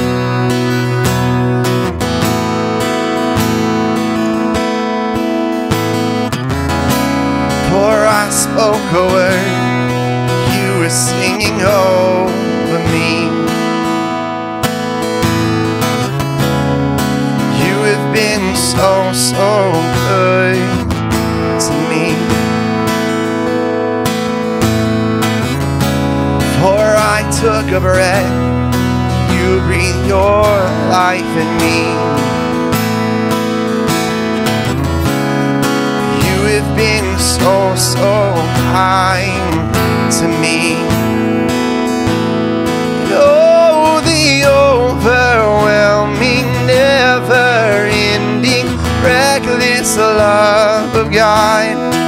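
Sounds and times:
acoustic guitars strumming: 0.0 - 52.0
person singing: 7.0 - 14.4, 16.5 - 22.8, 26.4 - 33.1, 35.9 - 41.4, 42.8 - 52.0
people singing: 43.1 - 51.8.

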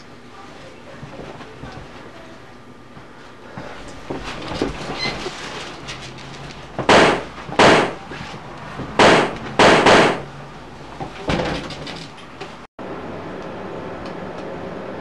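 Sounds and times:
loud bangs: 6.8 - 8.0, 9.0 - 10.3.

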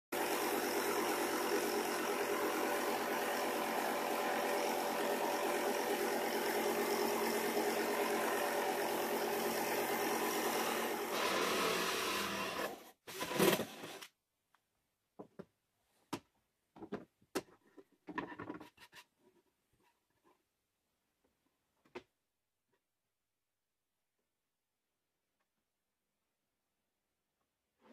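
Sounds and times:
jigsaw sawing plywood: 0.1 - 14.1.

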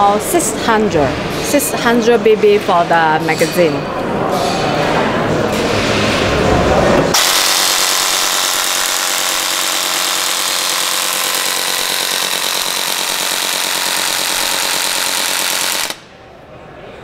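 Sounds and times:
fast mechanical motor buzz: 7.2 - 16.0.

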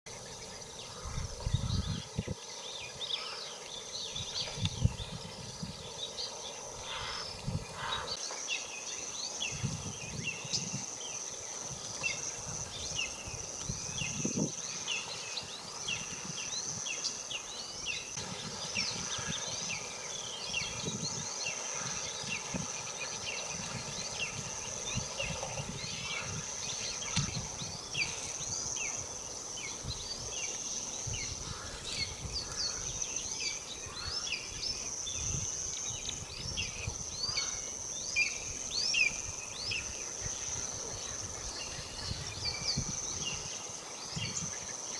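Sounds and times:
birds chirping: 0.1 - 44.9
high insect drone: 0.1 - 44.9.

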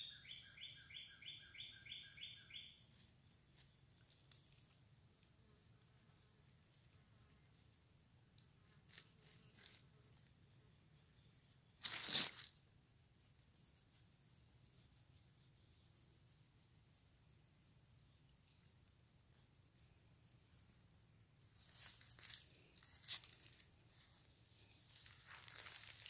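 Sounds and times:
faint rustles: 2.9 - 26.0
rustling crunch of dry leaves: 8.7 - 9.9, 11.8 - 12.6, 21.4 - 26.0.

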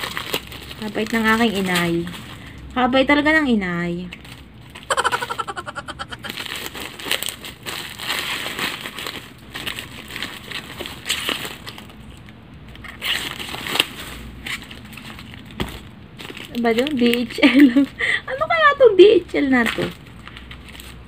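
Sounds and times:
plastic wrapping crinkling: 0.0 - 2.6, 4.1 - 18.0, 19.5 - 21.0
person humming: 4.9 - 6.3.

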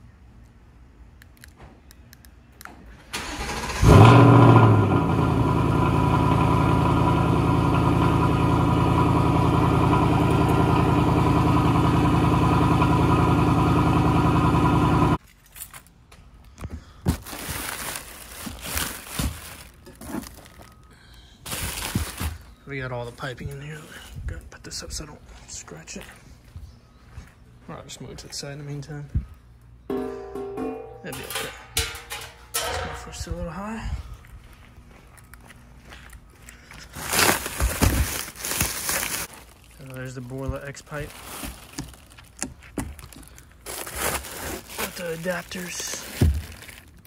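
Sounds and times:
car engine revving and idling: 3.7 - 15.2
packaging rustling and knocks: 17.1 - 20.8, 21.5 - 22.4, 36.9 - 39.5, 41.1 - 47.0.

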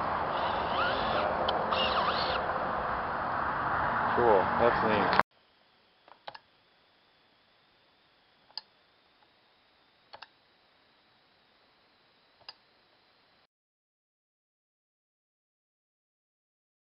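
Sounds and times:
outdoor background noise: 0.0 - 13.5.

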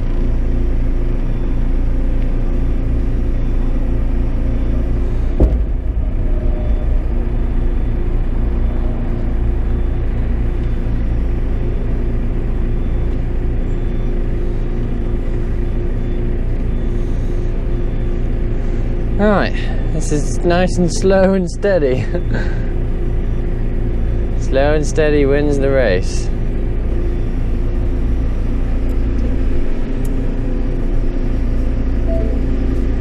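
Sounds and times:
diesel engine running: 0.0 - 33.0
sharp clunk: 5.4 - 7.1.

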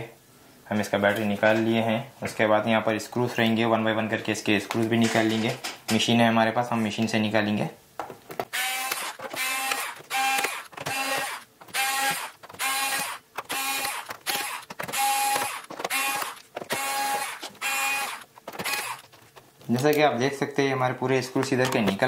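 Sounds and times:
electric screwdriver whirring: 8.5 - 19.1.

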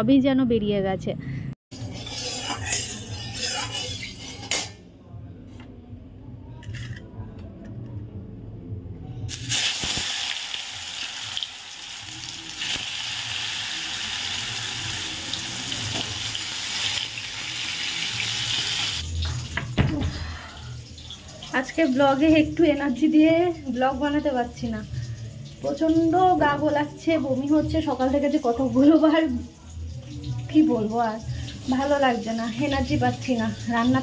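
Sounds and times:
vegetables sizzling in hot oil: 9.3 - 19.5, 20.6 - 34.0.

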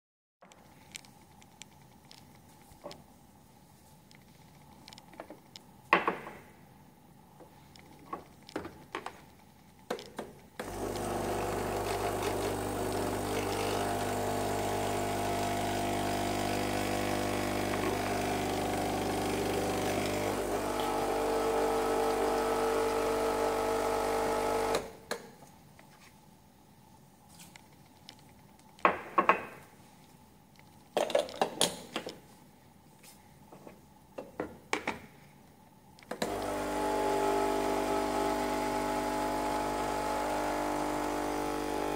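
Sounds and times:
espresso machine pump buzzing: 10.6 - 24.9, 36.2 - 41.9.

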